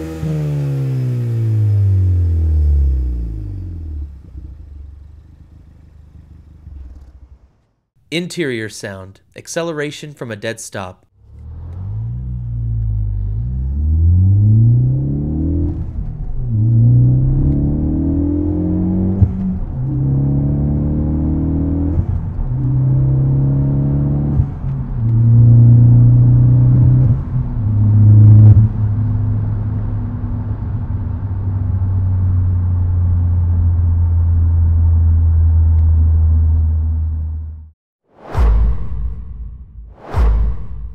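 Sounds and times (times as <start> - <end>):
car engine accelerating through gears: 0.0 - 7.7, 11.2 - 37.6.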